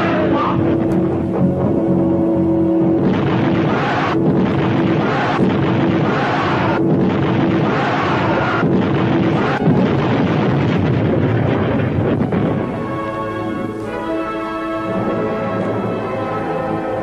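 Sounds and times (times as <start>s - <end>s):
explosion blasts and rumble: 2.8s - 13.6s.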